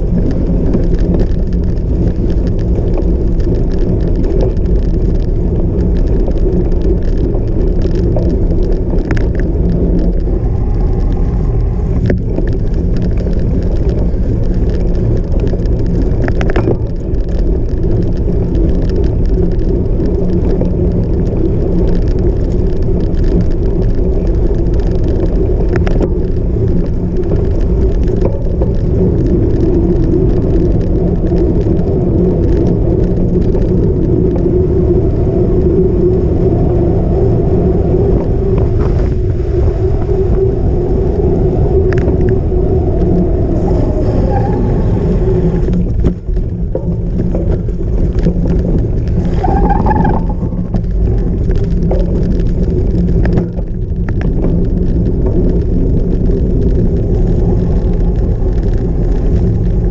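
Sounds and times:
bike rattling: 0.0 - 59.9
wind and tyre rumble: 0.0 - 59.9.

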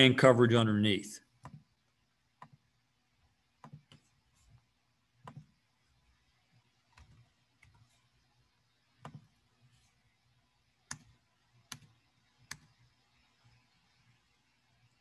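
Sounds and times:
computer mouse and keyboard clicks: 1.4 - 1.7, 2.4 - 2.6, 3.6 - 4.2, 5.2 - 5.6, 6.9 - 7.9, 9.0 - 9.3, 10.8 - 12.9.

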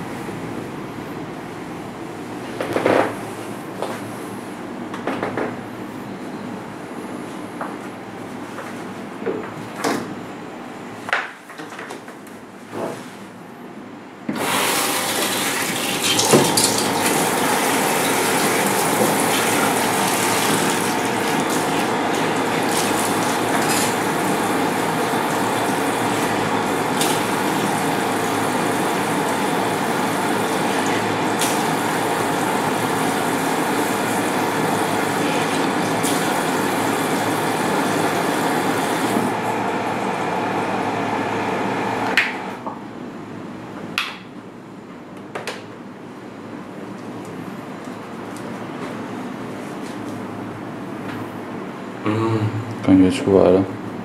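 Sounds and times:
tap water running into basin: 14.4 - 39.3.

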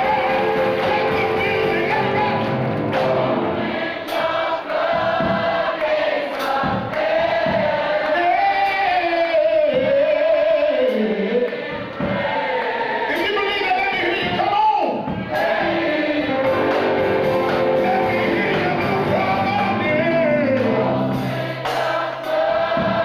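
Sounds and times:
man singing into microphone: 0.0 - 2.7, 8.1 - 11.6, 17.5 - 21.2
instrumental accompaniment: 0.0 - 5.8, 15.2 - 23.0
other voices singing: 0.0 - 23.0.

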